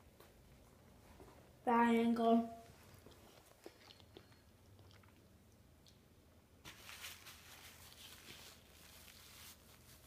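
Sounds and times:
paper napkin rustling: 6.6s - 10.0s.

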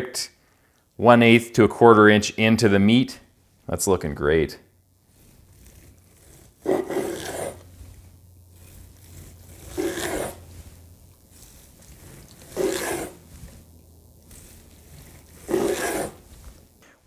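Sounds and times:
knife sawing through meat: 5.0s - 16.6s.

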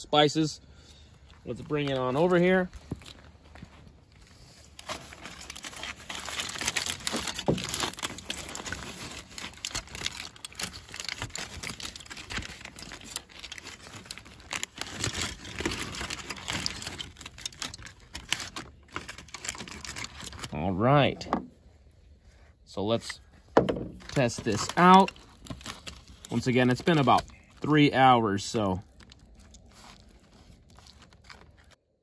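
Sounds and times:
aluminium foil crinkling: 4.5s - 20.6s, 23.8s - 31.9s.

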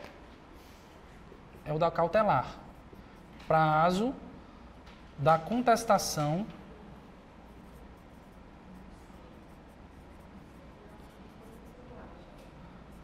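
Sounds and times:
low room hum: 0.0s - 13.0s
marker writing on whiteboard: 2.4s - 3.6s, 7.0s - 13.0s.

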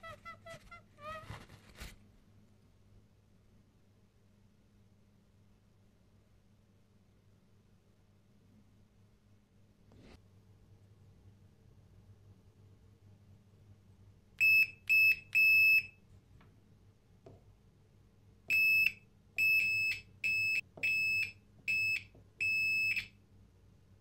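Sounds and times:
multimeter continuity beeps: 14.4s - 16.0s, 18.5s - 23.2s.

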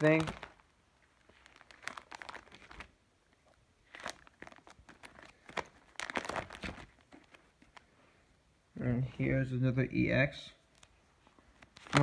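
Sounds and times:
plastic sleeve pages crinkling: 0.0s - 8.0s, 10.7s - 12.0s.

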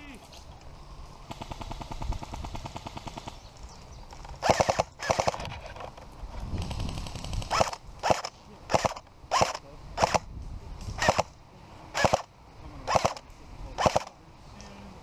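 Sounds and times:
airsoft gun full-auto burst: 1.3s - 3.4s, 4.4s - 5.4s, 6.9s - 10.3s, 11.0s - 11.3s, 11.9s - 12.3s, 12.9s - 13.2s, 13.8s - 14.1s
short bursts of noise: 4.2s - 14.2s.

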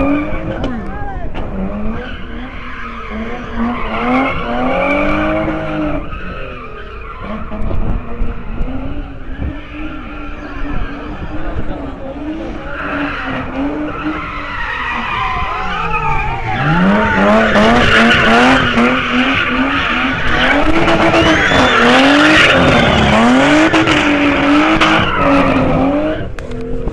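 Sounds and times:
car engine revving: 0.0s - 26.9s
tyres squealing on asphalt: 0.0s - 26.9s.

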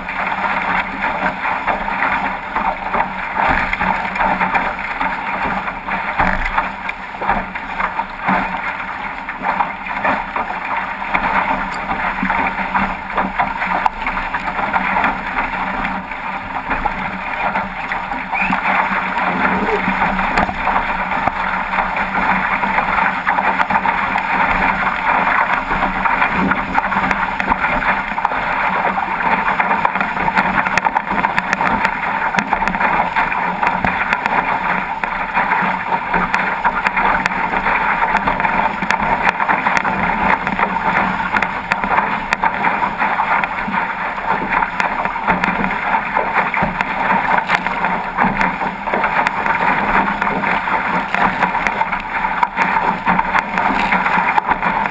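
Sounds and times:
water rushing along hull: 0.0s - 54.9s.

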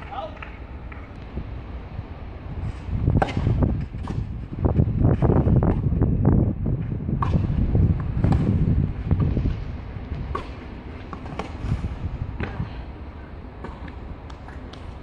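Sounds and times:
tennis ball struck by rackets: 3.1s - 4.3s, 7.1s - 9.4s, 10.2s - 11.6s.

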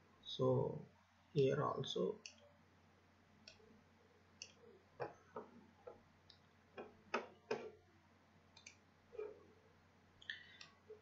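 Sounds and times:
computer mouse clicks: 3.4s - 3.6s, 8.6s - 9.3s.

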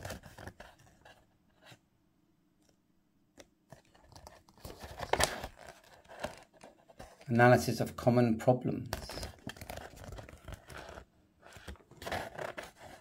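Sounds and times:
paper rustling and crinkling: 0.0s - 1.8s, 3.7s - 7.3s, 8.9s - 13.0s.

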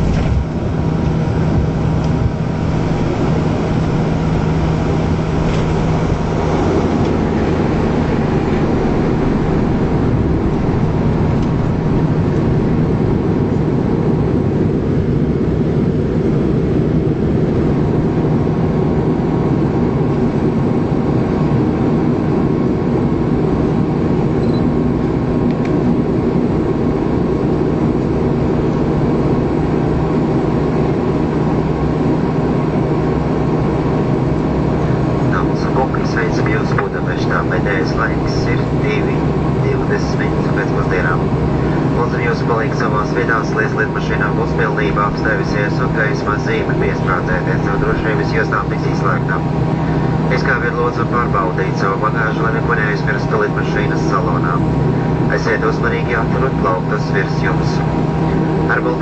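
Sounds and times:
turboprop engines from cabin: 0.0s - 59.0s
higher steady tone: 0.4s - 13.8s.

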